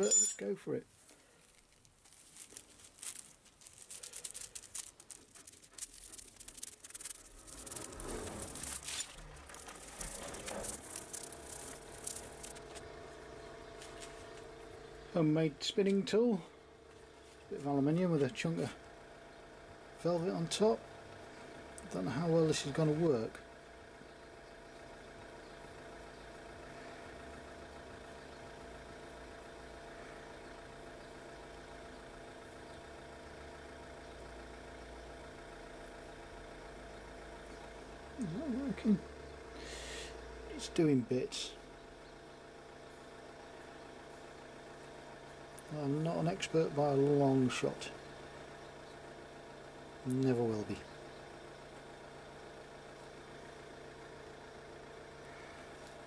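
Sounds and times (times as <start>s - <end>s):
faint steady hum: 0.0s - 56.0s
papery rustle and scratch: 1.0s - 12.8s.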